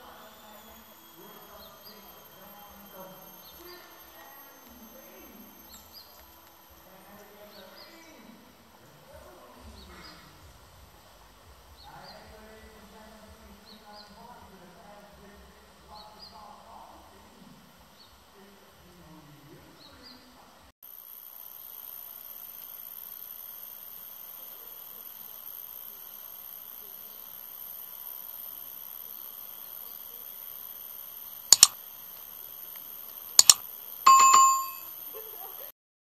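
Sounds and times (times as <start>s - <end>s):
steady high-pitched whine: 0.0s - 19.8s, 20.9s - 35.7s
sharp mouse clicks: 31.5s - 31.8s, 33.4s - 33.6s
short bell ding: 34.1s - 34.9s.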